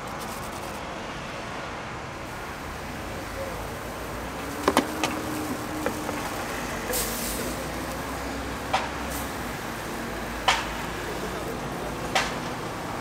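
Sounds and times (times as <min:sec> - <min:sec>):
street traffic hum: 0:00.0 - 0:13.0
short hiss: 0:06.9 - 0:07.6.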